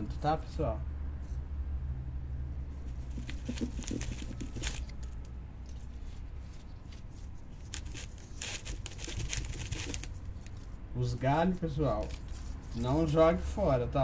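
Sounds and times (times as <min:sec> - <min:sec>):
leaves rustling and crinkling: 0:03.4 - 0:13.1.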